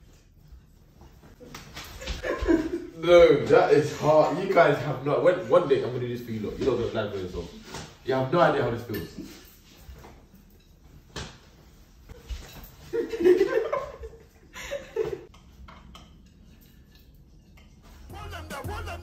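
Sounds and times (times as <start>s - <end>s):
music: 18.0s - 19.0s.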